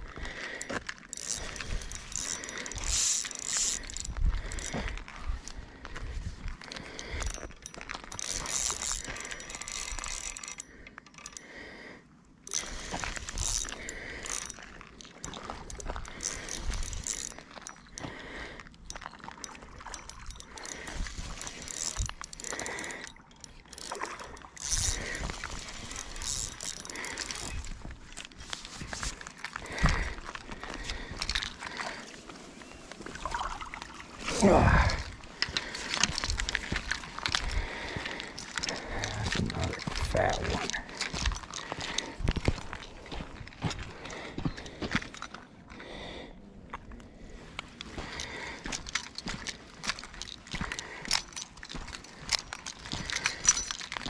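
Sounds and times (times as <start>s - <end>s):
fishing reel being cranked: 0.6s - 5.6s, 6.6s - 11.5s, 12.4s - 18.1s, 18.7s - 32.1s, 34.3s - 42.9s, 48.1s - 54.0s.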